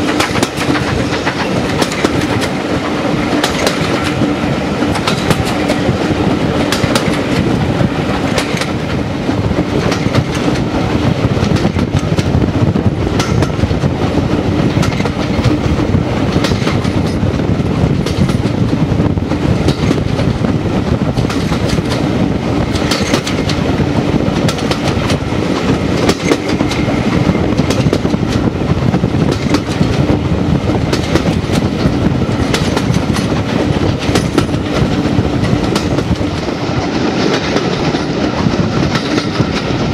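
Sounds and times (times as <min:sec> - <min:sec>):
wheels clicking over rail joints: 0:00.0 - 0:07.6, 0:22.7 - 0:23.6, 0:24.3 - 0:28.5, 0:30.9 - 0:39.9
train rumble: 0:00.0 - 0:39.9.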